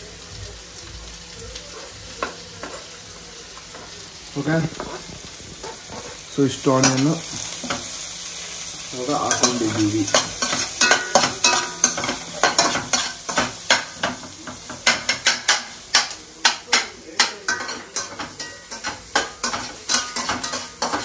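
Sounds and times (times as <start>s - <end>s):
onions sizzling in butter: 0.0s - 21.0s.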